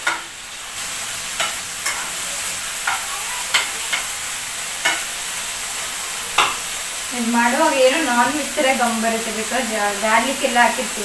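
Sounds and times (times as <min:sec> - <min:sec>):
broccoli sizzling in oil: 0:00.0 - 0:11.0
spoon scraping a pan: 0:01.3 - 0:05.3.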